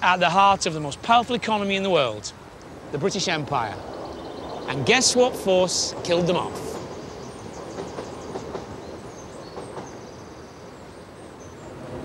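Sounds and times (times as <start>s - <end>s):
train wheels rumbling on track: 2.8s - 12.0s.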